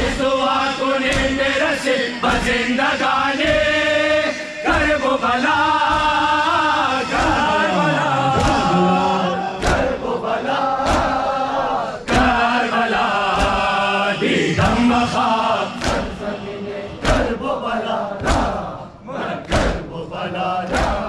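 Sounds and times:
crowd chanting in unison: 0:00.0 - 0:21.0
hands slapping chests: 0:08.2 - 0:10.0, 0:10.8 - 0:11.2, 0:13.4 - 0:13.7, 0:15.8 - 0:16.2, 0:16.9 - 0:17.4, 0:18.2 - 0:18.7, 0:19.4 - 0:19.9, 0:20.6 - 0:21.0.

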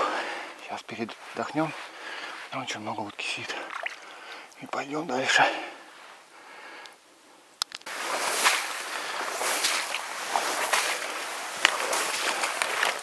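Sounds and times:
reeds brushing against clothing: 0:00.9 - 0:03.4, 0:07.8 - 0:13.0
small crackles: 0:06.0 - 0:13.0.

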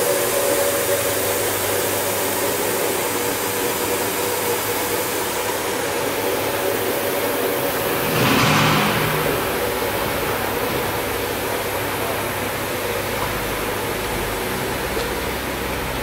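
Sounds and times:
brief rush of noise: 0:07.8 - 0:11.0.

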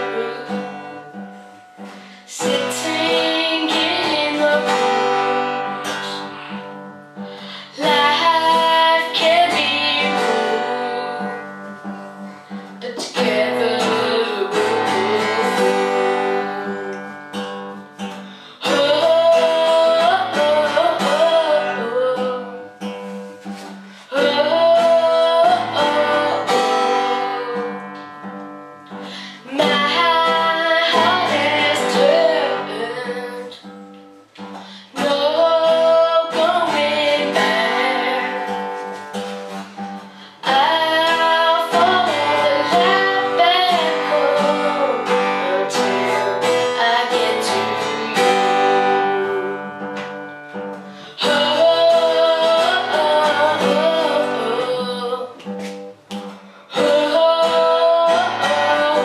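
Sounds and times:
child singing: 0:00.0 - 0:01.0, 0:02.3 - 0:06.5, 0:07.6 - 0:11.5, 0:12.8 - 0:17.1, 0:18.6 - 0:22.6, 0:24.1 - 0:27.9, 0:29.4 - 0:33.6, 0:34.9 - 0:38.7, 0:40.4 - 0:49.7, 0:51.1 - 0:55.4, 0:56.7 - 0:59.0
acoustic guitar strumming: 0:00.0 - 0:59.0.

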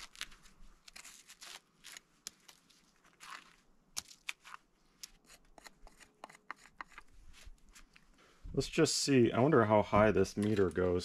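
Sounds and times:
knife scraping bark: 0:04.3 - 0:07.1.

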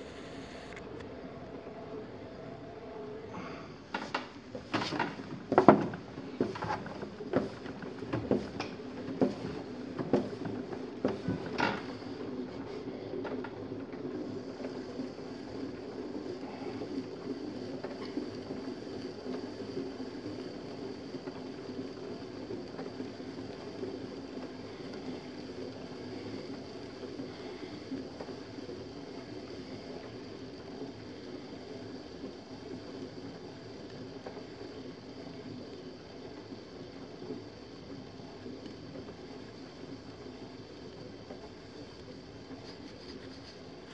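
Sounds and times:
potter's wheel humming: 0:00.0 - 0:43.9.

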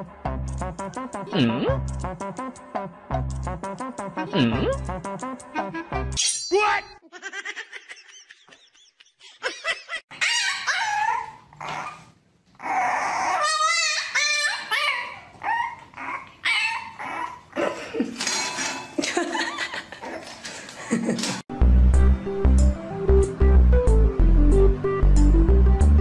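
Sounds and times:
dog whining and yipping: 0:10.1 - 0:17.6.

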